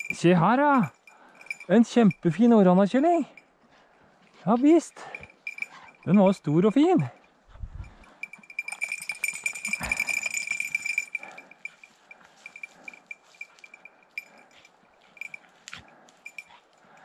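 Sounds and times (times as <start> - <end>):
dog collar bell jingling: 0.0 - 3.5, 4.4 - 17.0
brush rustling: 8.1 - 16.5.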